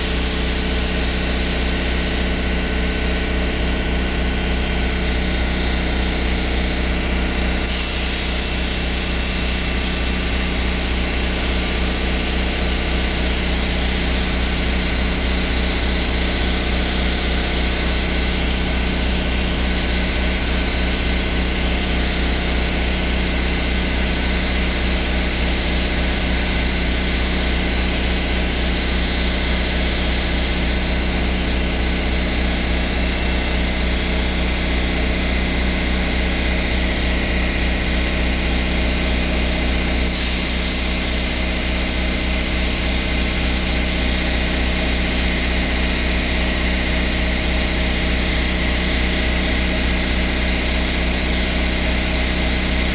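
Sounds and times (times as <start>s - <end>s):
spray gun hissing: 0.0s - 2.4s, 7.7s - 30.8s, 40.2s - 52.9s
low motor drone: 0.0s - 35.5s.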